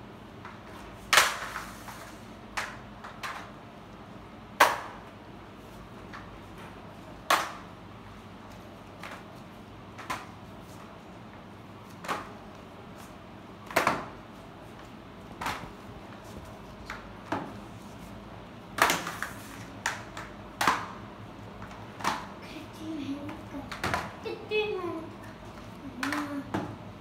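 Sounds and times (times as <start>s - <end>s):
mop pushed across tiled floor: 0.7s - 2.3s.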